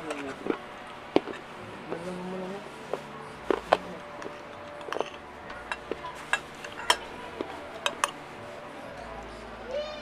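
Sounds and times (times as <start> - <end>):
cutlery clinking on plates: 3.5 - 8.2.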